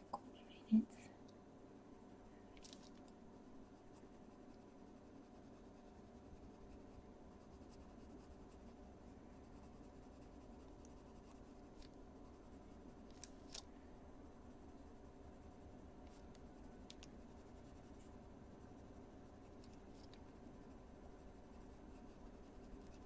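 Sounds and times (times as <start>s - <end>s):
steady low hum: 0.0s - 23.0s
pencil scratching on paper: 3.6s - 13.2s, 15.0s - 18.2s, 18.8s - 23.0s.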